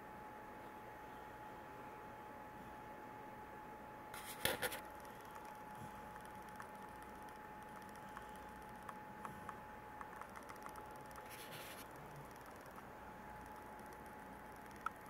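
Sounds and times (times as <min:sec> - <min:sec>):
faint high whine: 0:00.0 - 0:15.0
soft clicks: 0:04.9 - 0:12.8.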